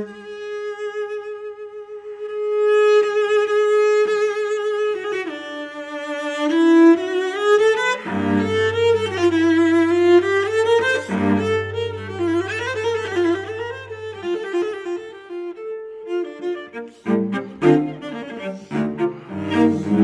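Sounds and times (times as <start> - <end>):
bowed cello melody: 0.0 - 20.0.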